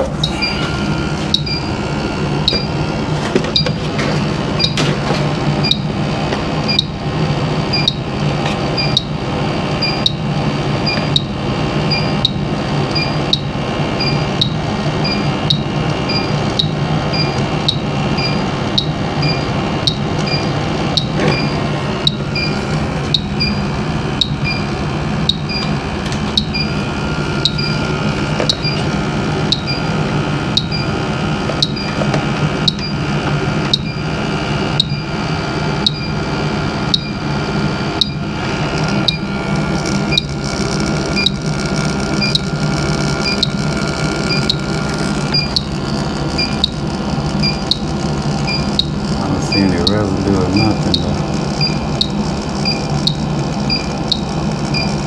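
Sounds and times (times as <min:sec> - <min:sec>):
low equipment hum: 0:00.0 - 0:55.0
leak detector beeping ticks: 0:01.3 - 0:01.8, 0:02.4 - 0:02.8, 0:05.6 - 0:05.9, 0:06.7 - 0:07.0, 0:07.7 - 0:08.1, 0:08.8 - 0:09.2, 0:09.8 - 0:23.6, 0:24.2 - 0:25.8, 0:26.4 - 0:26.8, 0:27.4 - 0:28.9, 0:29.5 - 0:29.9, 0:30.5 - 0:31.0, 0:31.6 - 0:32.0, 0:32.6 - 0:33.0, 0:33.7 - 0:34.1, 0:34.8 - 0:35.1, 0:35.8 - 0:36.2, 0:36.9 - 0:37.3, 0:38.0 - 0:38.3, 0:39.0 - 0:44.7, 0:45.3 - 0:55.0.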